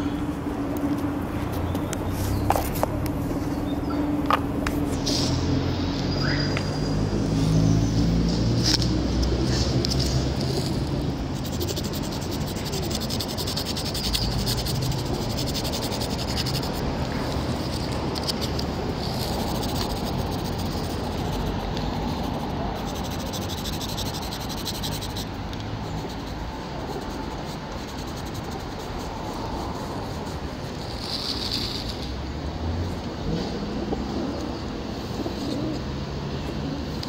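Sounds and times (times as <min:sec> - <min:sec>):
pastel scraping on asphalt: 0:00.0 - 0:05.6, 0:08.2 - 0:32.2
street noise: 0:00.0 - 0:37.0.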